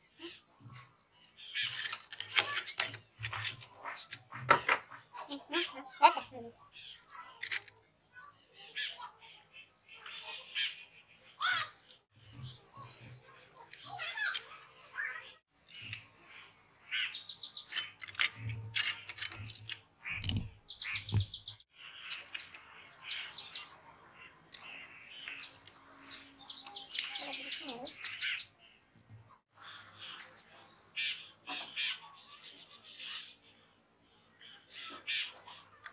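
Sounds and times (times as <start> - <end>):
small birds chirping and trilling: 0.0 - 35.9.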